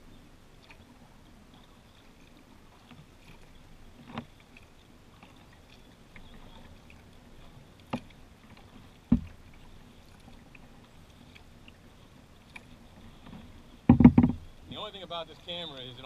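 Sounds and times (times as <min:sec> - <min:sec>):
water sounds and drips: 0:00.0 - 0:16.0
knocks on kayak: 0:09.1 - 0:09.4, 0:13.9 - 0:14.4.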